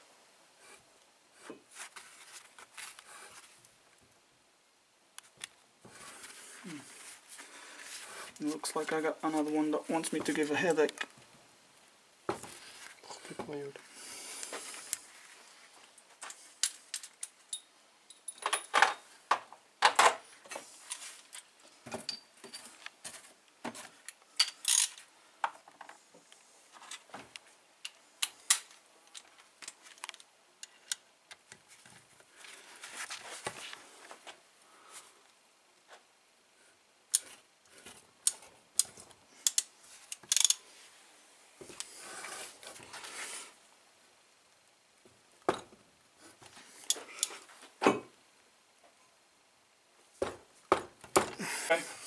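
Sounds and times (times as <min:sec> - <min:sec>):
metallic clicks of tools and parts: 0:16.6 - 0:19.0, 0:22.1 - 0:22.7, 0:24.1 - 0:25.0, 0:38.2 - 0:40.6.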